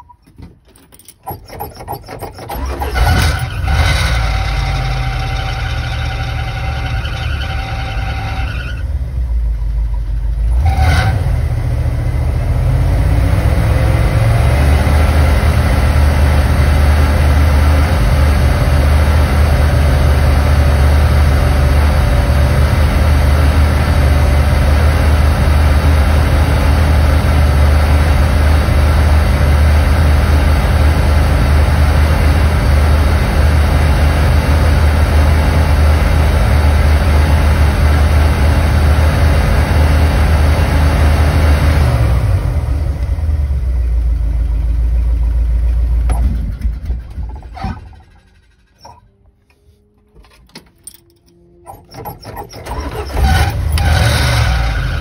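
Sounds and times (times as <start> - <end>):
starter cranking: 0.0 - 8.3, 46.0 - 49.4, 50.2 - 55.0
engine squeal: 0.0 - 11.5, 46.1 - 55.0
engine idling: 0.0 - 55.0.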